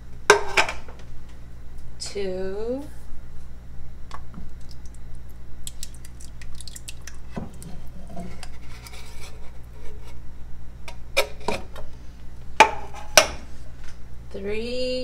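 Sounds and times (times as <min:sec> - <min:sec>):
tomatoes squishing into a pot: 0:04.1 - 0:10.1.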